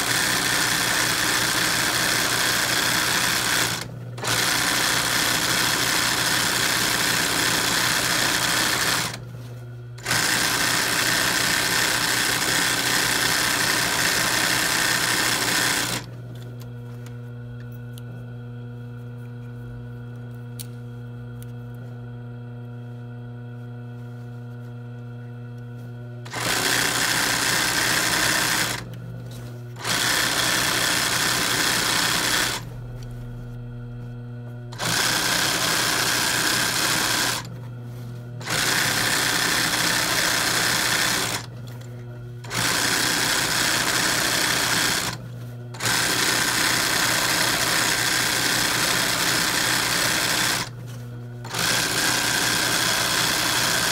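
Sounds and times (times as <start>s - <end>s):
sewing machine stitching fast: 0.0s - 9.2s, 10.0s - 16.1s, 26.3s - 28.9s, 29.8s - 32.7s, 34.7s - 37.5s, 38.4s - 41.5s, 42.4s - 45.2s, 45.8s - 50.8s, 51.4s - 53.9s
sewing machine humming: 0.0s - 9.3s, 10.0s - 16.2s, 26.2s - 29.0s, 29.8s - 37.6s, 38.4s - 50.8s, 51.4s - 53.9s.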